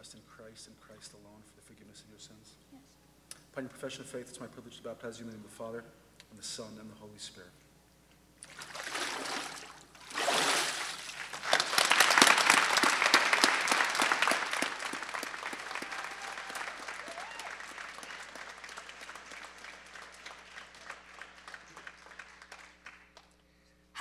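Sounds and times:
water splash: 8.4s - 11.7s
congregation applauding: 10.3s - 23.4s.

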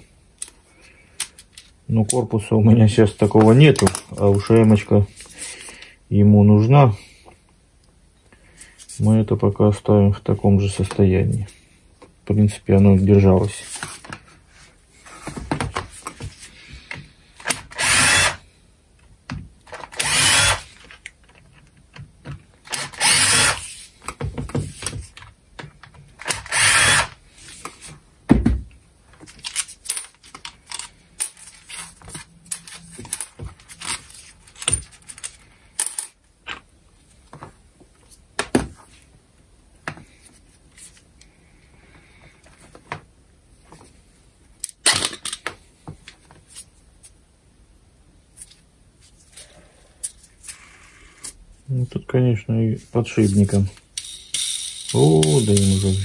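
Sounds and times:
power screwdriver running: 17.5s - 18.4s, 19.8s - 20.7s, 22.7s - 23.7s, 26.2s - 27.2s
metal parts clicking and knocking: 54.0s - 56.0s.

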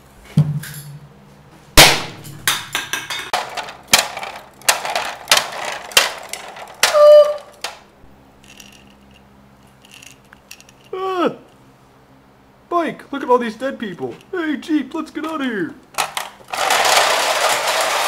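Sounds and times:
firecrackers banging: 1.8s - 7.9s.

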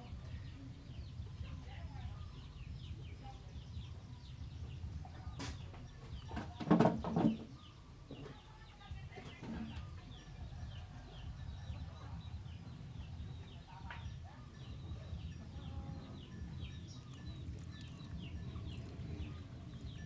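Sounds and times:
high chirping calls: 9.6s - 20.0s
steady low rumble: 10.3s - 20.0s.

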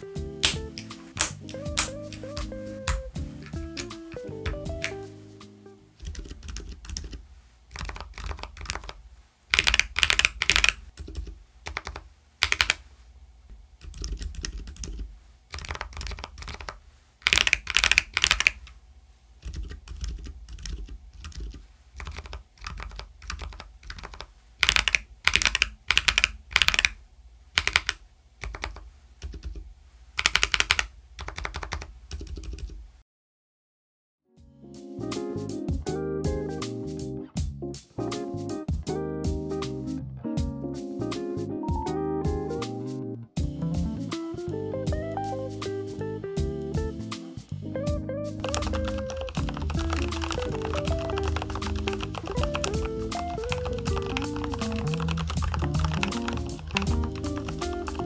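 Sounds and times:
keyboard typing: 0.4s - 5.1s, 6.0s - 12.8s, 13.8s - 18.6s, 19.4s - 27.0s, 27.6s - 29.6s, 30.2s - 32.7s, 48.4s - 58.0s.

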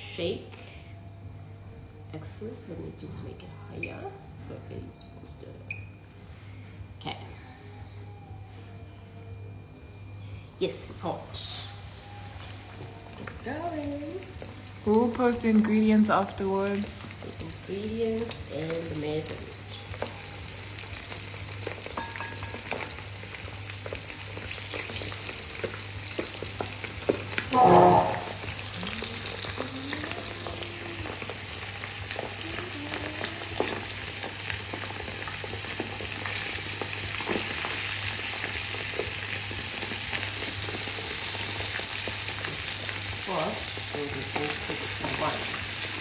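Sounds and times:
chicken deep-frying in hot oil: 12.2s - 46.0s
brief loud sound: 27.5s - 28.5s.

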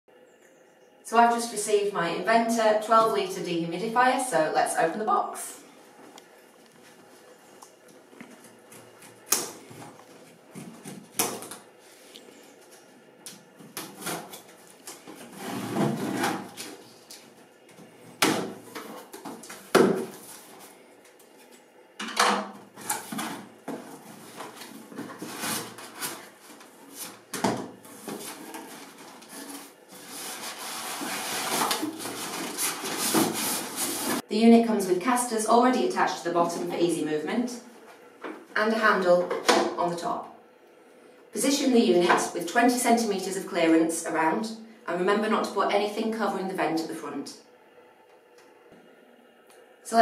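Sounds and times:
cardboard scraping and handling: 13.6s - 17.2s, 22.8s - 34.2s.

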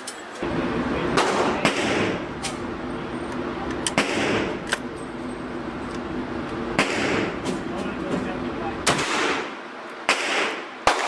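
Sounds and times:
steady hum: 0.0s - 11.0s
gunshots echoing indoors: 1.2s - 2.2s, 3.9s - 4.6s, 6.8s - 7.4s, 8.8s - 11.0s.

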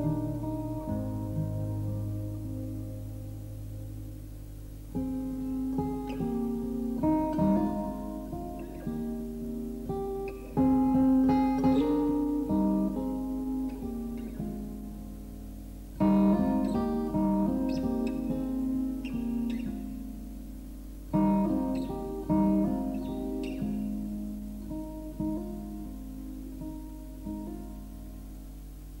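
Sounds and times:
acoustic guitar: 0.0s - 29.0s.

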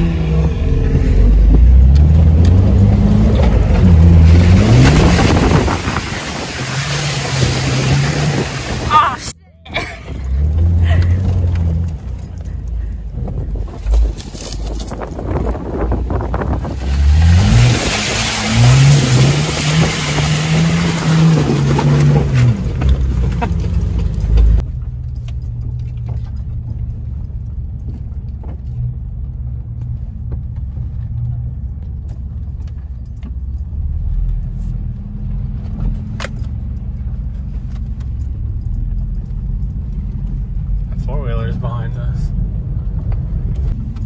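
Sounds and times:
engine revving: 0.0s - 9.0s, 16.4s - 24.6s
rushing spray of mud and water: 4.8s - 9.0s, 17.0s - 21.4s.

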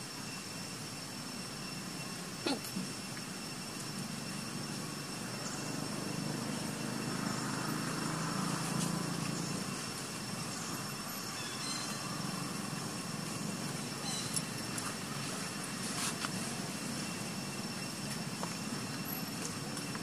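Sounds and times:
vehicle engine running: 4.5s - 20.0s.

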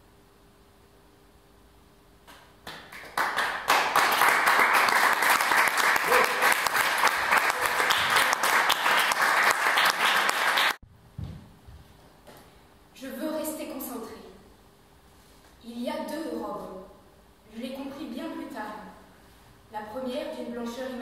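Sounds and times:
audience applauding: 2.6s - 10.8s.

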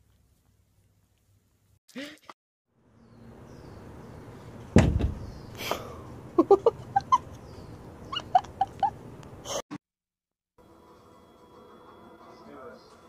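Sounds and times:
thump: 4.8s - 5.3s.

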